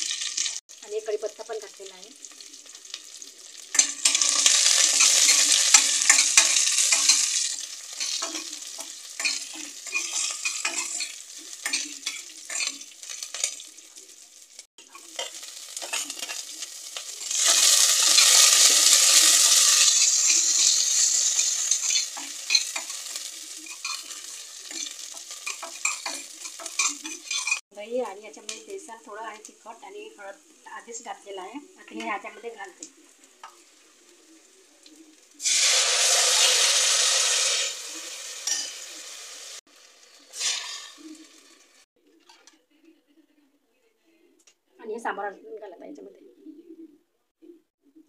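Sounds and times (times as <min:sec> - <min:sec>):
spices sizzling in hot oil: 0:00.0 - 0:41.9
spoon scraping steel pot: 0:03.8 - 0:13.6, 0:17.2 - 0:23.0, 0:23.7 - 0:27.6.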